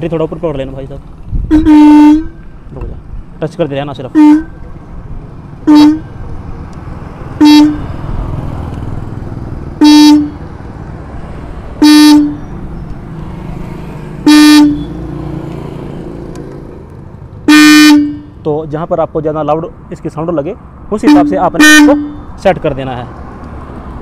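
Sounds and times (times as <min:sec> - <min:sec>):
electric horn honking: 0:01.4 - 0:02.5, 0:04.0 - 0:04.8, 0:05.6 - 0:06.2, 0:07.4 - 0:08.0, 0:09.8 - 0:10.5, 0:11.8 - 0:12.6, 0:14.2 - 0:15.0, 0:17.4 - 0:18.4, 0:21.0 - 0:22.3.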